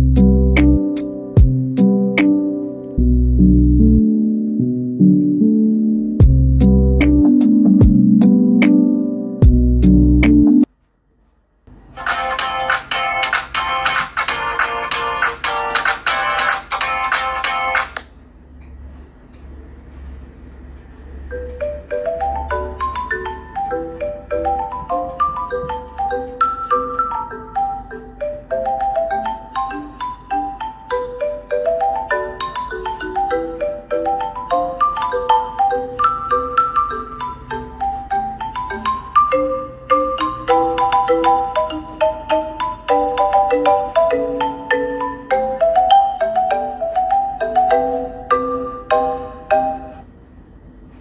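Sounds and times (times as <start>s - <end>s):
bell-like mallet instrument music: 5.3s - 10.7s, 21.3s - 50.0s
marimba ringtone from phone speaker: 21.3s - 50.0s.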